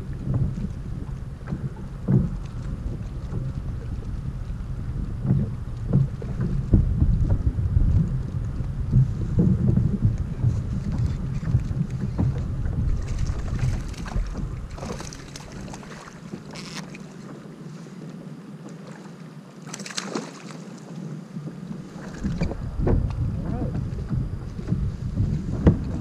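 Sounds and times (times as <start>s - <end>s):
wind rumbling on microphone: 0.0s - 18.5s, 21.2s - 26.0s
water noise around kayak: 0.0s - 26.0s
short water splashes: 10.0s - 17.2s, 18.8s - 21.0s.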